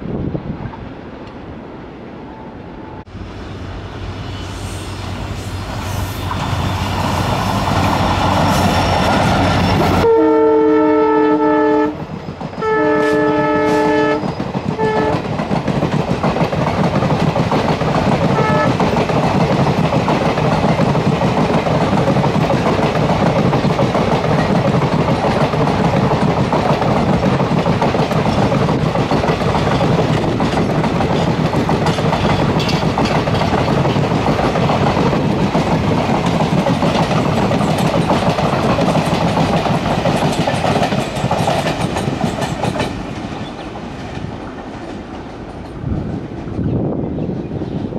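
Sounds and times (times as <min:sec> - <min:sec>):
diesel locomotive accelerating: 0:02.0 - 0:10.1
train air horn blasts: 0:10.0 - 0:12.0, 0:12.6 - 0:15.2, 0:18.3 - 0:18.8
train wheels clacking on rails: 0:11.9 - 0:47.9.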